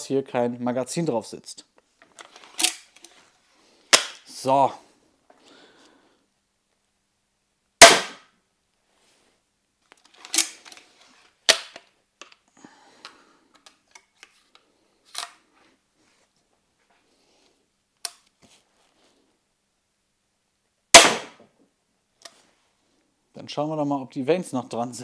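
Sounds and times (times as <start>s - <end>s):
crossbow shot crack: 3.9s - 4.2s, 7.8s - 8.3s, 11.5s - 11.8s, 20.9s - 21.4s.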